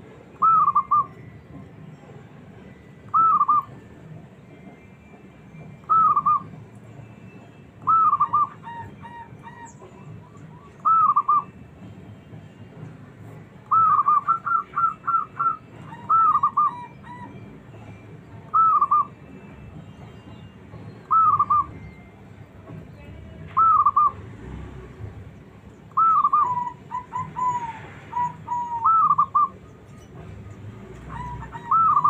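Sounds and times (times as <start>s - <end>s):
dove cooing: 7.8s - 9.7s, 13.7s - 17.4s, 26.0s - 29.6s, 31.1s - 32.0s.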